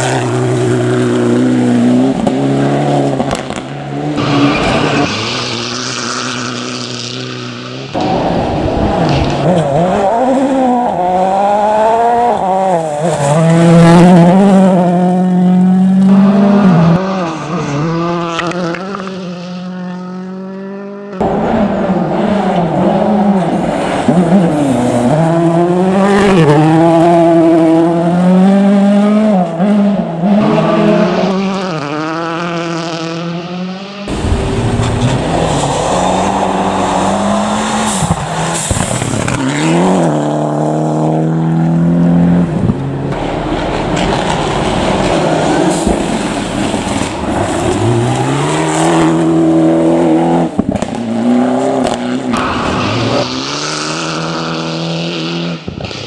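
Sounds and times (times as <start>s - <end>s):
rally car engines revving: 0.0s - 56.0s.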